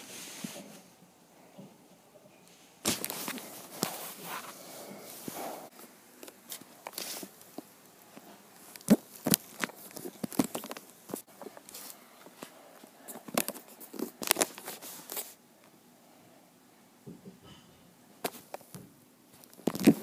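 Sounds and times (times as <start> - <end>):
cloth rustling: 2.8 - 15.4.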